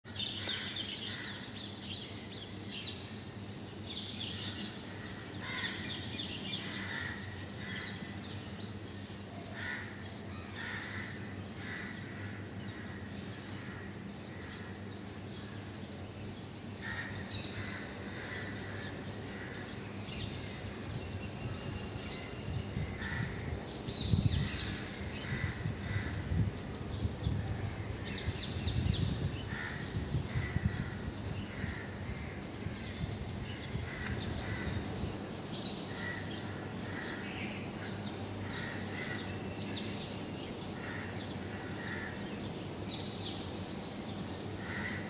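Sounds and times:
birds calling: 0:00.1 - 0:45.0
steady low hum: 0:00.1 - 0:45.0.

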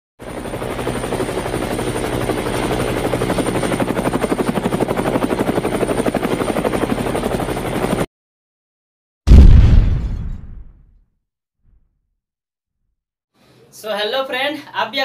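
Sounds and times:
helicopter rotor blades chopping: 0:00.2 - 0:08.1.

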